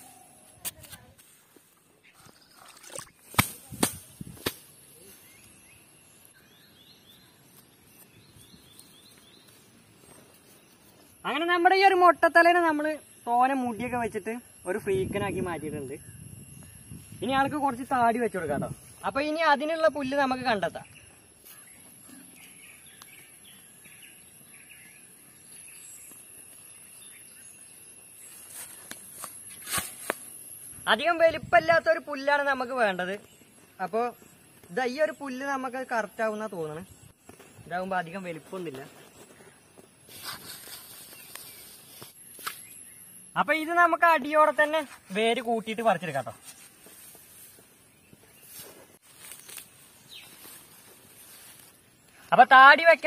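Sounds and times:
sharp snaps: 3.2s - 4.7s
faint high chirping: 4.6s - 46.7s
high-pitched insect drone: 10.6s - 22.3s, 23.2s - 32.9s.

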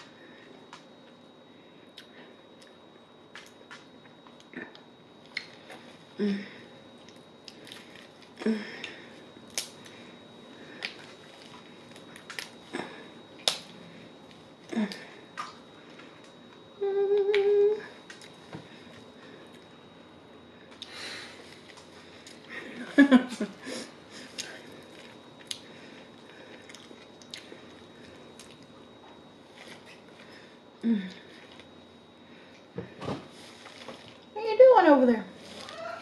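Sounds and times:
person chewing: 24.2s - 28.8s.

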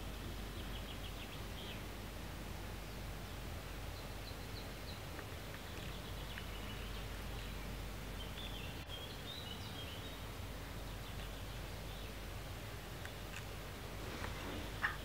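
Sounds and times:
faint bird chirps: 2.7s - 12.3s, 14.2s - 15.0s.

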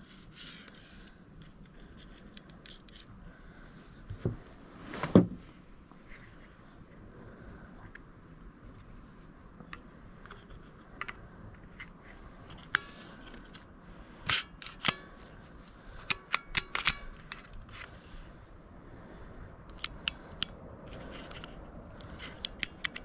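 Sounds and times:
small metal parts clicking: 14.3s - 17.9s.

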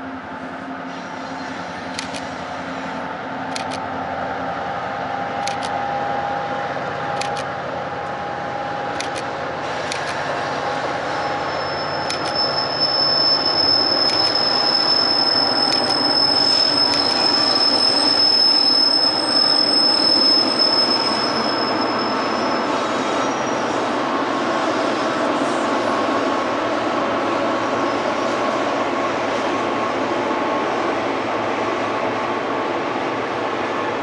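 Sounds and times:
freight train rumble: 0.0s - 34.0s
high wheel squeal: 9.7s - 23.9s.

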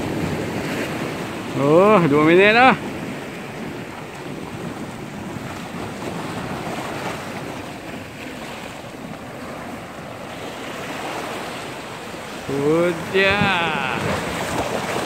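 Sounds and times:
surf breaking over rocks: 0.0s - 15.0s
wind buffeting microphone: 0.0s - 15.0s.

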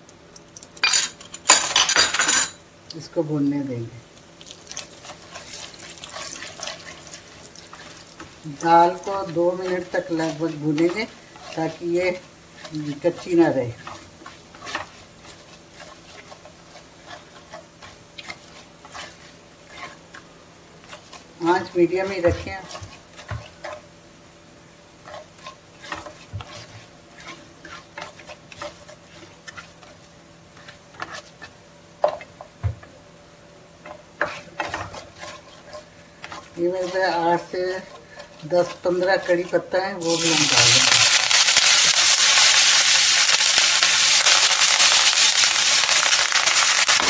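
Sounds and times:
seeds sizzling and crackling: 4.1s - 23.9s, 33.8s - 47.0s.

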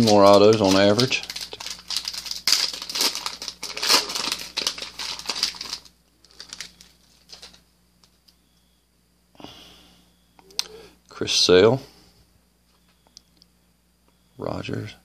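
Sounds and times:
foil wrapper tearing and crinkling: 0.0s - 7.6s.

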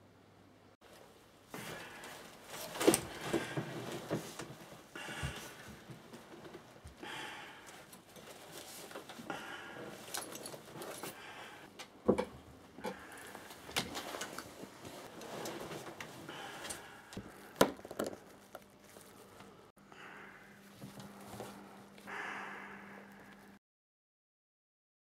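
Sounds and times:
breathing through gas mask: 7.0s - 7.9s, 9.2s - 11.7s, 16.2s - 17.6s, 19.0s - 23.6s.

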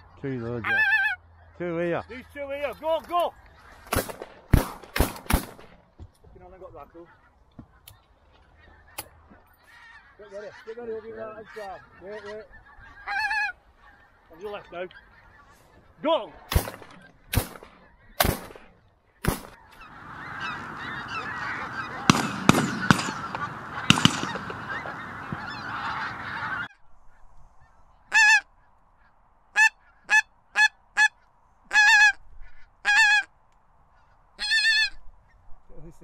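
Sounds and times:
flock of geese calling: 0.0s - 4.2s, 6.4s - 33.3s, 33.9s - 36.0s
single goose calls: 0.0s - 5.7s, 6.9s - 33.3s, 33.9s - 35.4s
shotgun shots: 3.9s - 5.8s, 16.5s - 19.6s, 22.0s - 24.9s.

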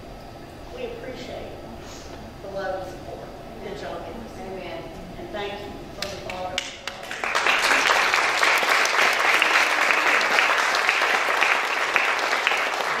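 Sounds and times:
congregation applauding: 6.6s - 13.0s.

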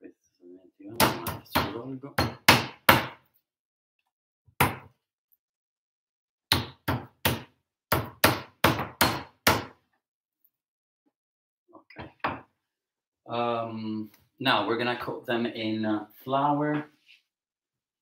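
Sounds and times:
meat pounder striking meat on board: 1.0s - 3.2s, 6.5s - 9.8s.

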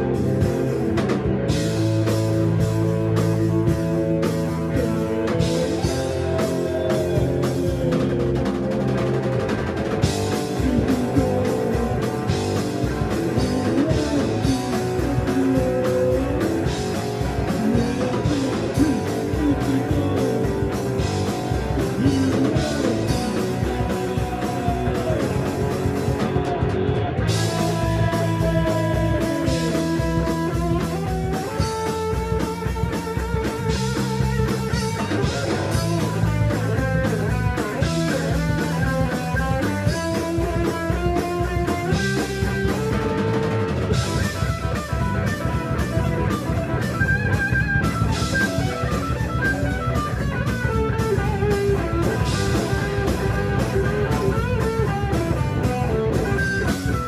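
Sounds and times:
drum kit: 0.0s - 57.0s
electric guitars: 0.0s - 57.0s.

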